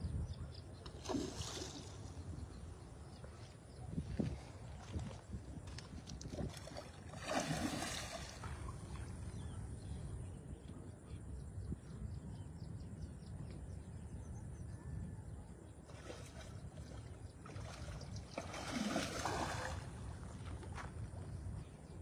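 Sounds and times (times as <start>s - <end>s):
fish splashing in water: 0.9s - 2.2s, 6.4s - 8.8s, 17.5s - 20.0s.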